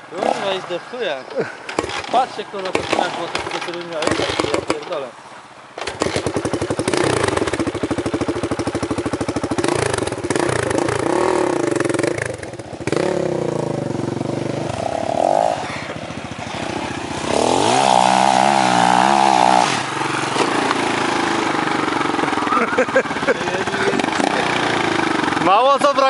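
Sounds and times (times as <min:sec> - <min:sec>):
motorcycle engine revving: 0:00.0 - 0:05.1, 0:05.8 - 0:26.0.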